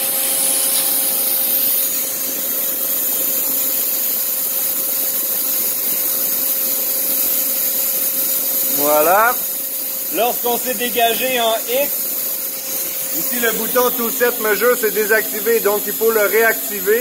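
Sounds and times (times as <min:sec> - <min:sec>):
lathe machine hum and hiss: 0:00.0 - 0:17.0
steady mid-pitched tone: 0:10.1 - 0:12.0, 0:12.6 - 0:17.0.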